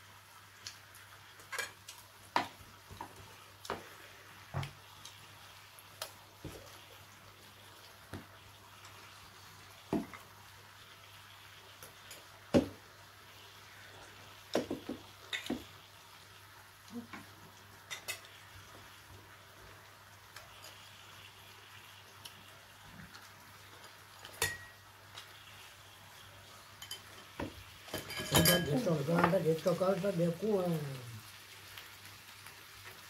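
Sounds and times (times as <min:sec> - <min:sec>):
chopsticks clinking against bowls: 0:28.0 - 0:28.8.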